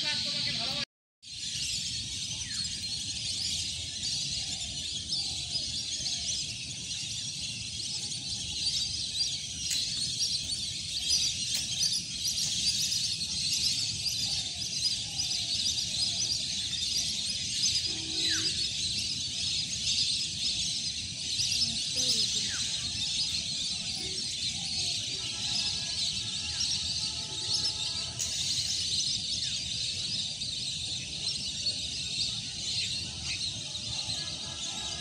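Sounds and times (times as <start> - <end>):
flock of birds chattering: 0.0 - 35.0
faint low bird calls: 1.5 - 35.0.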